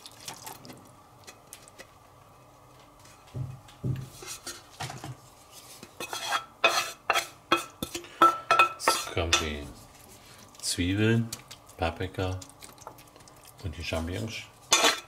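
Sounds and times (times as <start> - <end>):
utensils clinking against dishes: 14.7 - 15.0.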